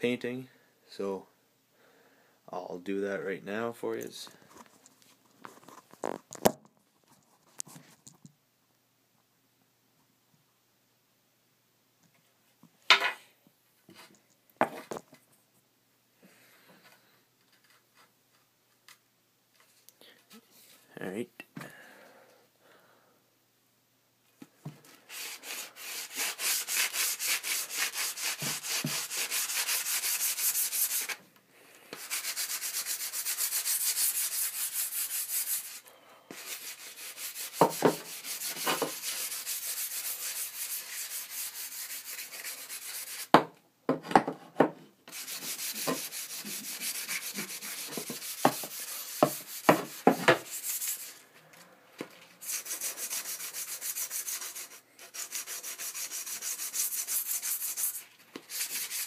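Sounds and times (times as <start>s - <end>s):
sandpaper rubbing stick shaft: 25.1s - 31.2s, 31.9s - 43.3s, 45.1s - 51.2s, 52.4s - 59.0s.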